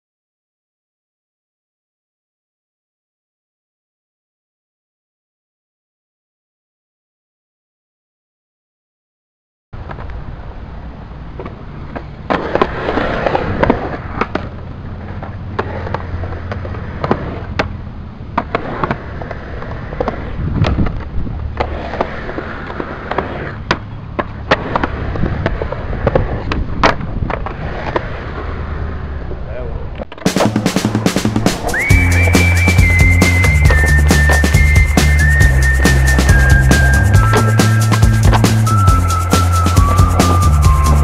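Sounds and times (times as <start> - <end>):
skateboard wheels rolling on concrete: 9.8 - 41.0
skateboard clacking on ground: 11.2 - 28.5, 29.9 - 41.0.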